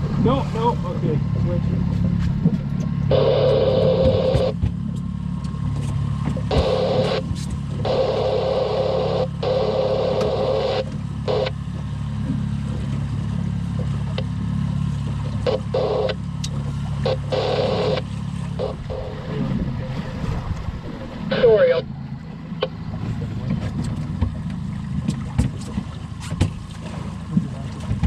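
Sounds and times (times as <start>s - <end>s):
boat motor humming: 0.0s - 28.0s.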